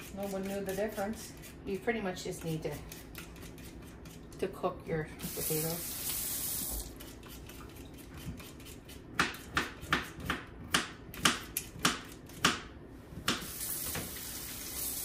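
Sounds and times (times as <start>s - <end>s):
peeler scraping potato: 0.0s - 4.6s, 6.9s - 10.3s.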